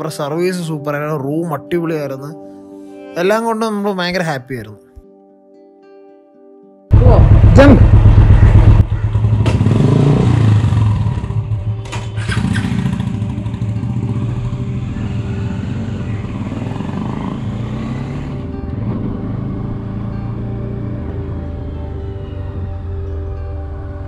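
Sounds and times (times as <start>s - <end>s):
motorcycle engines pulling away: 6.9s - 24.0s.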